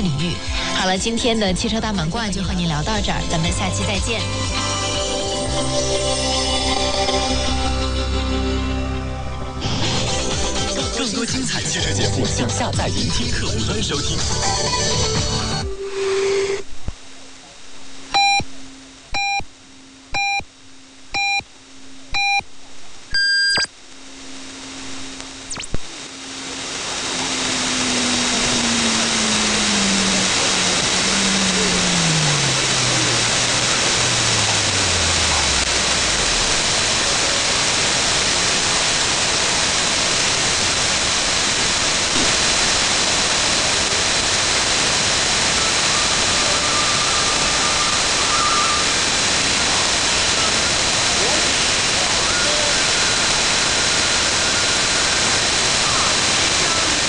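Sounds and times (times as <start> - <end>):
low steady hum: 0.0 - 57.0
shortwave static: 0.0 - 57.0
time pip beeps: 18.2 - 18.5, 19.2 - 19.5, 20.1 - 20.4, 21.2 - 21.4, 22.2 - 22.4, 23.1 - 23.7.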